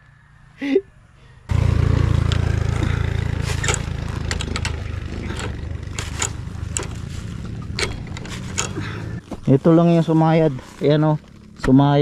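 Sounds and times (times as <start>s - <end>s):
motorcycle engine idling: 1.5s - 12.0s
wrench clicking and scraping metal: 3.5s - 8.8s.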